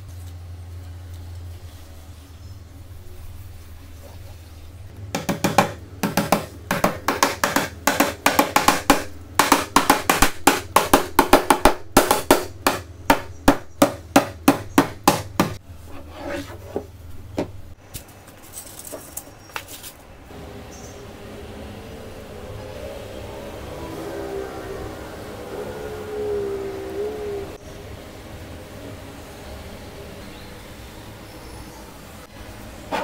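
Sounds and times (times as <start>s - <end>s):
hammer driving nails into wood: 5.2s - 15.6s.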